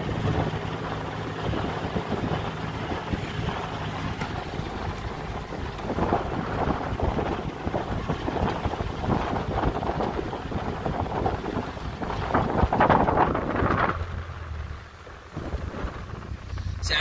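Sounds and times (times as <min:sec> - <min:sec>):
wind buffeting microphone: 0:00.0 - 0:16.8
vehicle low rumble: 0:00.0 - 0:17.0.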